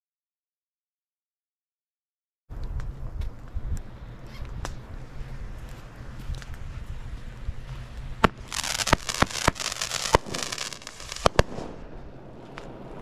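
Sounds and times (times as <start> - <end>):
firework crackling: 2.5 - 13.0
firework bangs: 4.6 - 13.0.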